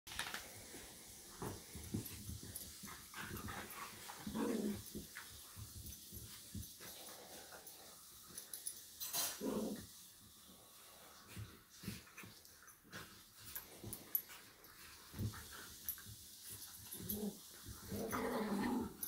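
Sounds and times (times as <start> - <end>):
dogs scuffling: 0.1 - 7.7.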